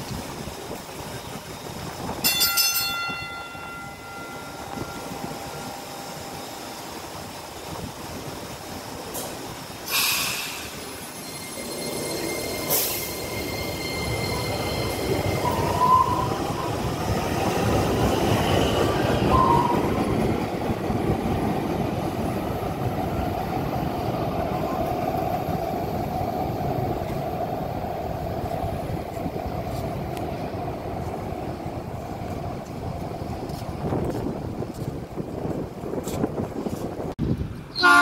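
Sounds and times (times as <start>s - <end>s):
train rolling rumble: 0.0s - 38.0s
high wheel squeals: 9.9s - 16.9s.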